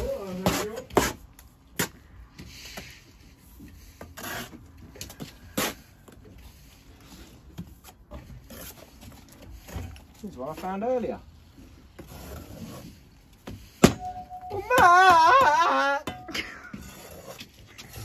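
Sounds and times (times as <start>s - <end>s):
trowel scraping mortar: 16.6s - 18.0s.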